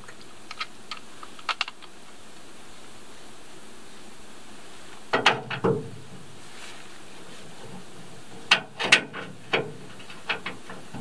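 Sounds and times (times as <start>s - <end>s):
sharp clicks: 0.1s - 1.9s
knocks and clatter of aluminium canoe: 5.1s - 11.0s.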